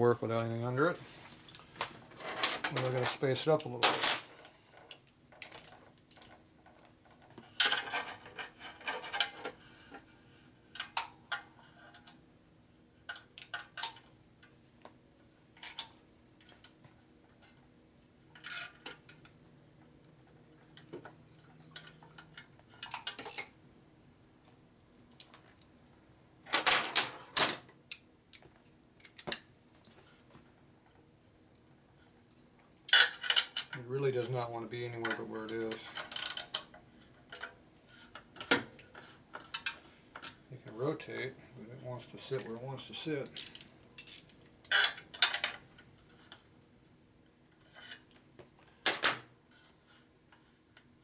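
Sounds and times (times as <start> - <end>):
metal parts and tools clattering: 2.2 - 6.4, 26.5 - 27.7, 43.4 - 45.6.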